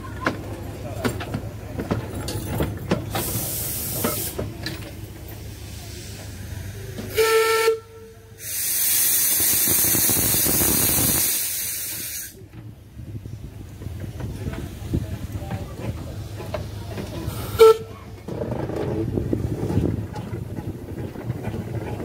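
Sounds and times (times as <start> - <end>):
steam hissing loudly: 3.1 - 4.5, 8.4 - 12.4
steam locomotive whistle toot: 7.1 - 8.8, 17.5 - 18.0.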